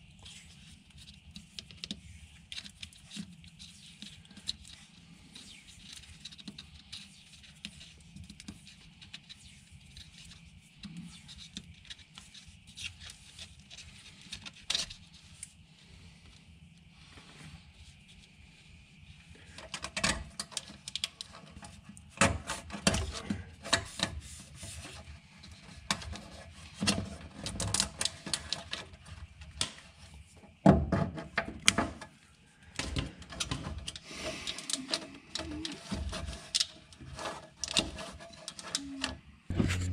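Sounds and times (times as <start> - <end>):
cable conduit scraping and clicking: 19.5 - 30.1, 33.0 - 39.9.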